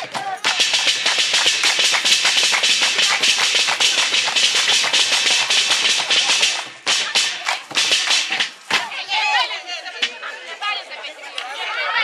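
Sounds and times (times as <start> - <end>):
hands clapping: 0.0 - 8.8
plastic bucket drumming: 0.0 - 8.9.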